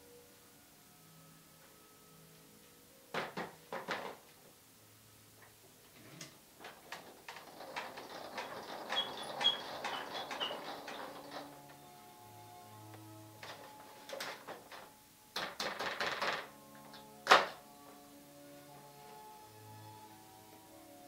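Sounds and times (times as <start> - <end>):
swivel chair squeaks: 6.0 - 12.2
rustling and clicking handling: 6.1 - 12.0, 12.9 - 17.5.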